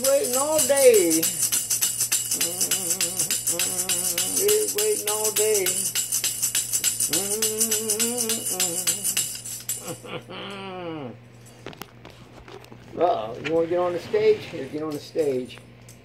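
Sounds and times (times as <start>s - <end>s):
tambourine shaking: 0.0s - 10.3s.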